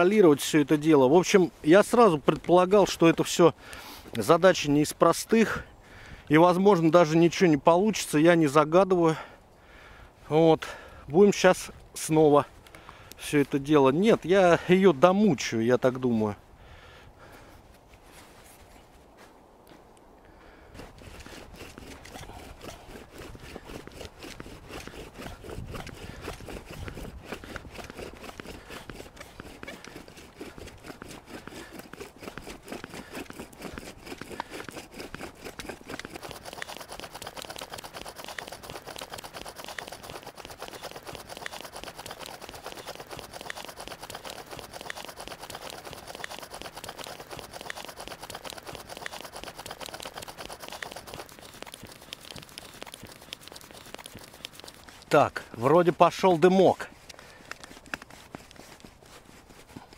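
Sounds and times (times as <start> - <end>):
wooden spindle grinding in socket: 20.8 - 59.9.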